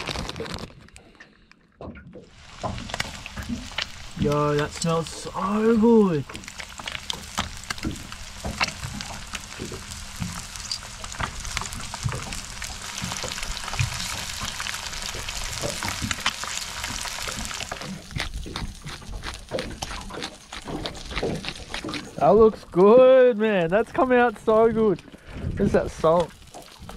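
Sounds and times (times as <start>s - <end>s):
fish sizzling in oil: 2.3s - 21.9s
scattered knocks and clicks: 6.3s - 12.4s.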